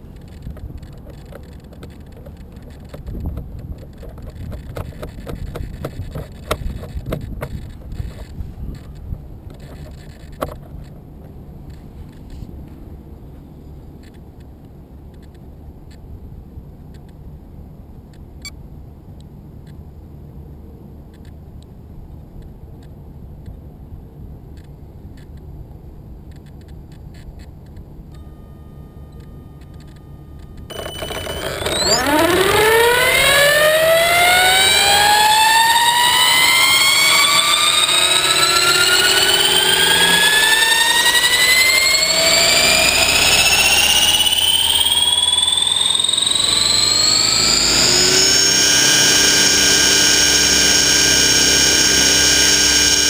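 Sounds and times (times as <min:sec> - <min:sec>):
helicopter motor whine: 0:29.6 - 0:53.0.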